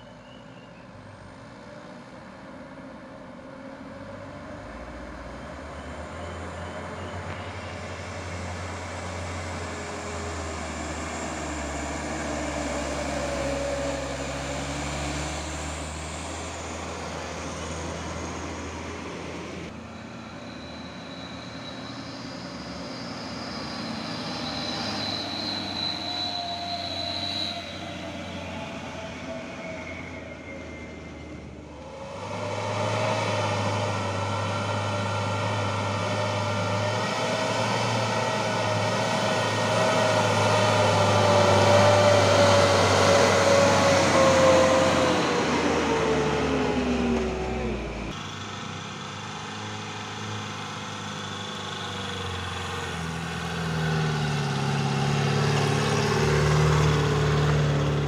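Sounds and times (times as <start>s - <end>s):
diesel truck engines labouring: 0.0s - 58.0s.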